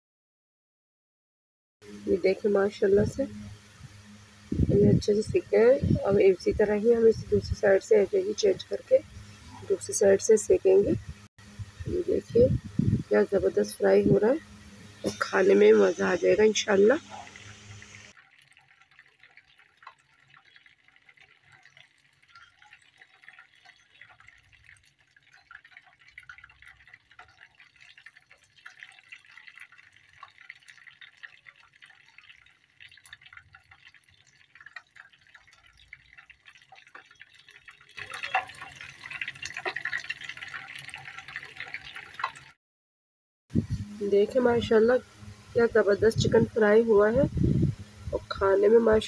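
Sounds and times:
chicken deep-frying in oil: 0:01.8 - 0:42.6, 0:43.6 - 0:49.0.

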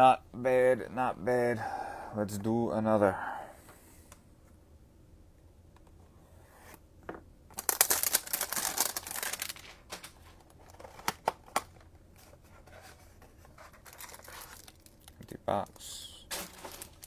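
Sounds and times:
packaging tearing: 0:07.6 - 0:11.2, 0:13.8 - 0:15.2, 0:16.3 - 0:17.0.

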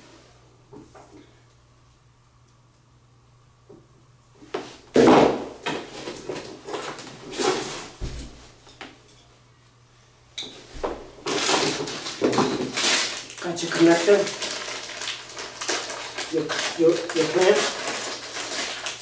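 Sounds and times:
rustling packaging: 0:11.2 - 0:19.0.

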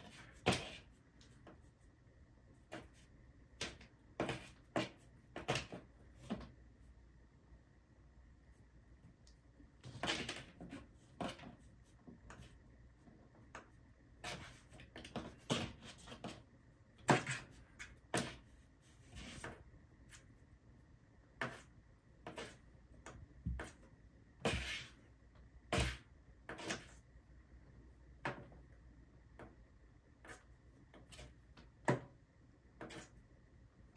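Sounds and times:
kitten scratching cardboard box: 0:14.2 - 0:20.3.

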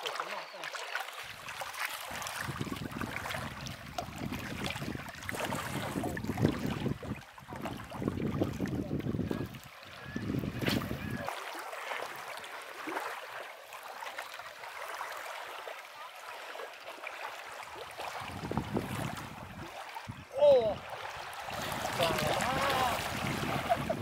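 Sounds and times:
small waves lapping at shore: 0:00.0 - 0:24.0
wind buffeting microphone: 0:02.1 - 0:11.3, 0:17.9 - 0:24.0.

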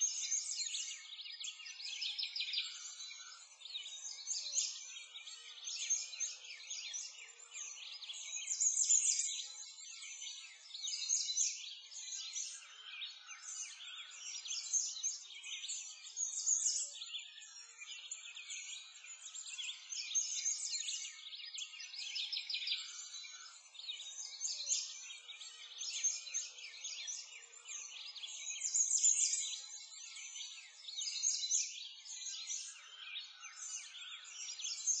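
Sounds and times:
songbirds chirping and trilling: 0:00.0 - 0:35.0.

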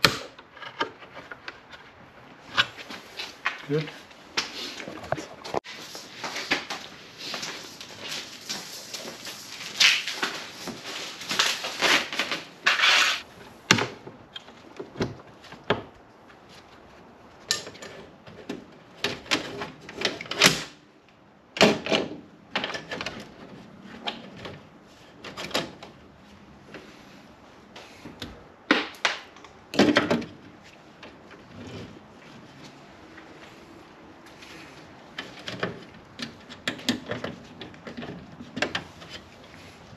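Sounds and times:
wiring scraping rustles: 0:00.0 - 0:13.6.

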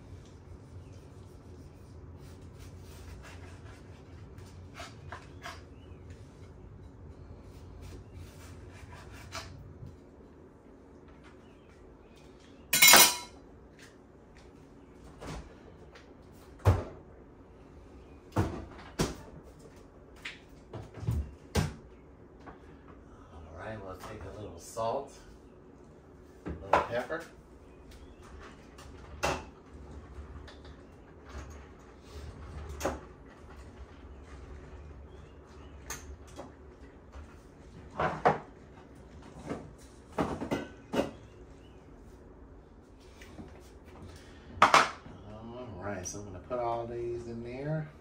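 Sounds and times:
dishes clunking: 0:12.7 - 0:13.4.

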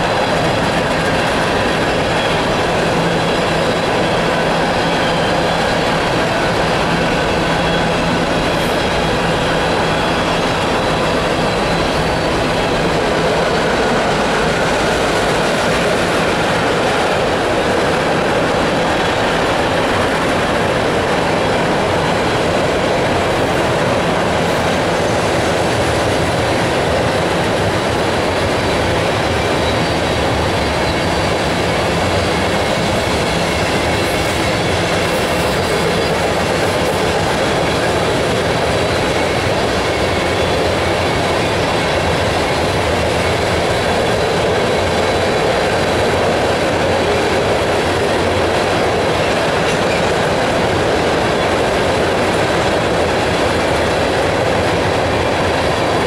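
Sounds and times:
freight train wheels rolling on rails: 0:00.0 - 0:56.0.

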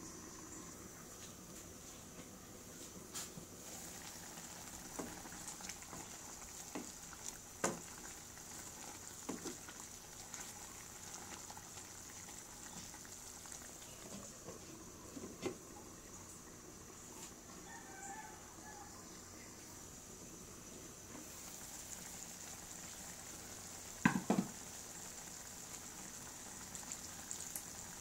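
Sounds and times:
sauce bubbling in a frying pan: 0:03.6 - 0:18.2, 0:20.2 - 0:28.0
glass lid knocking: 0:24.1 - 0:24.5.

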